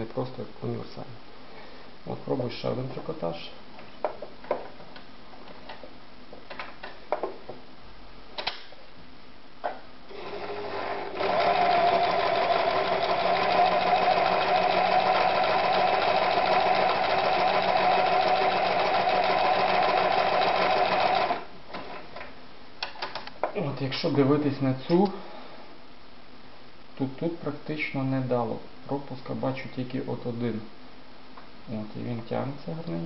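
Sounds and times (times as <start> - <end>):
sewing machine running: 10.1 - 22.0.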